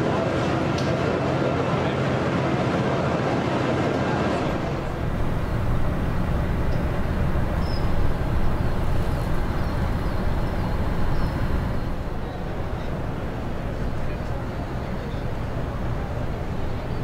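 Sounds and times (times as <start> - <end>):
low rumble: 4.4 - 17.0
faint high chirps: 4.8 - 13.0.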